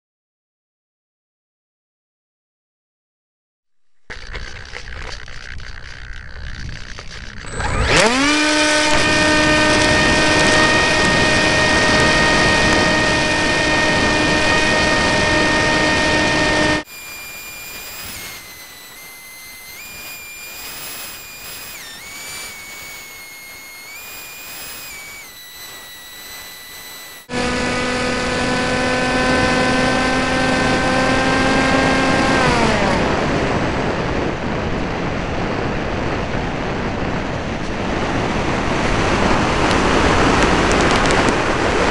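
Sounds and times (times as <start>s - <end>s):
model airplane motor whining: 4.0s - 33.7s
high shifting tones: 4.2s - 29.2s.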